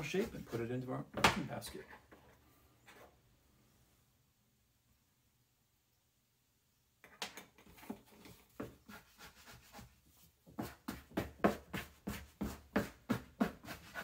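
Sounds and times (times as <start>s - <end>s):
dough scraper scraping wood: 10.6s - 14.0s.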